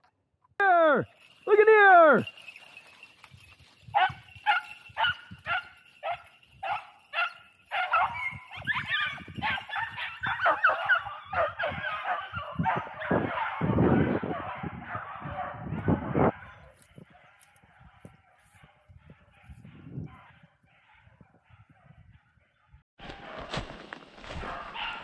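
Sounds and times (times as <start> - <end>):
hounds baying: 1.1 - 22.8, 24.4 - 25.0
footsteps crunching dry leaves: 23.0 - 25.0.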